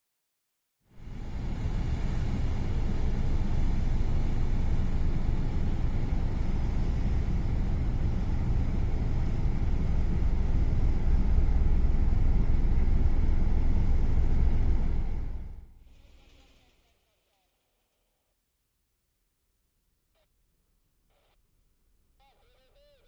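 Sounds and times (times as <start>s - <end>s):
ship deck rumble: 1.0s - 15.6s.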